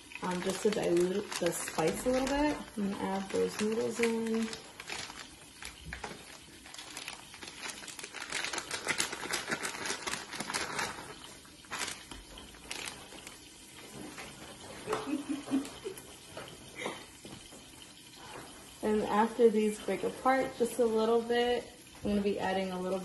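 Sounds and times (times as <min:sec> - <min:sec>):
plastic packaging crinkling: 0:00.0 - 0:15.9.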